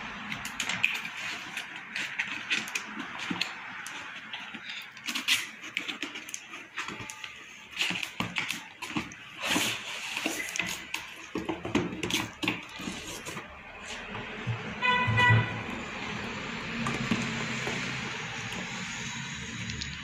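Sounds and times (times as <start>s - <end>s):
cardboard box rustling and scraping: 7.7s - 15.8s.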